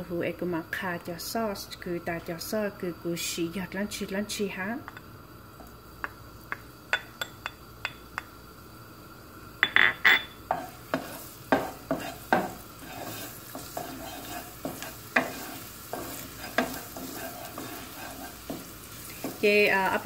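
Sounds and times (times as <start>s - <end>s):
food sizzling in oil: 0.4s - 20.0s
spoon stirring: 10.1s - 20.0s
wooden spoon knocking on pan: 10.5s - 19.5s.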